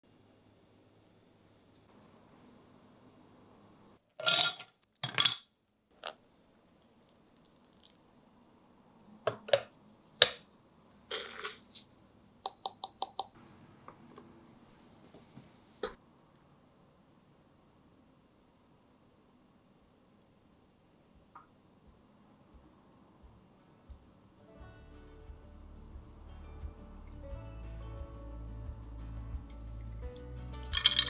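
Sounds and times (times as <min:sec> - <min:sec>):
ice cubes rattling in glass: 0:30.6 - 0:31.0.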